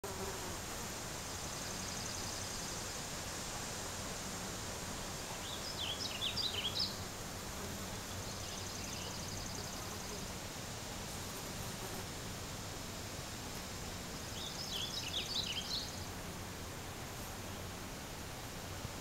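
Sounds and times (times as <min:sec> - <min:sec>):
outdoor background hiss: 0:00.0 - 0:19.0
songbird chirps: 0:01.4 - 0:03.1, 0:05.1 - 0:07.0, 0:08.0 - 0:10.3, 0:14.3 - 0:16.1.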